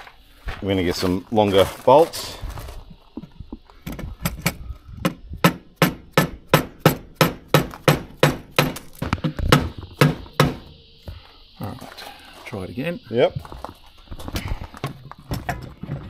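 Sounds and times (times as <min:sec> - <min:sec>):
hammer tapping on metal plate: 0:04.2 - 0:08.8.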